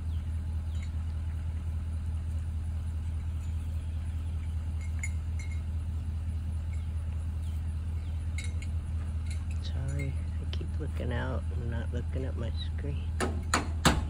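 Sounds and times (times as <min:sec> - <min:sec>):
truck engine idling: 0:00.0 - 0:14.0
faint metallic clinks: 0:03.0 - 0:05.8, 0:08.0 - 0:10.4.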